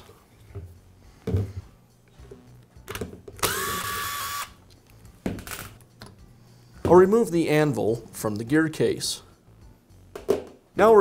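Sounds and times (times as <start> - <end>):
cordless driver motor running: 3.4 - 4.5.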